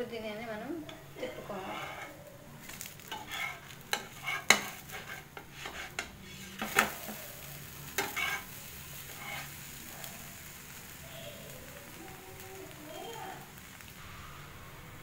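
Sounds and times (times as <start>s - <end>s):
pancake sizzling faintly: 0.0s - 15.0s
spatula scraping a pan: 0.9s - 9.8s.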